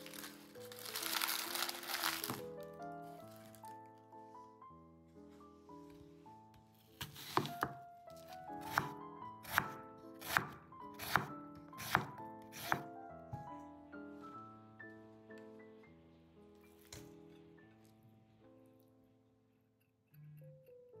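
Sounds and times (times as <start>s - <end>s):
background music: 0.0s - 19.2s
knife cutting on cutting board: 6.9s - 12.9s.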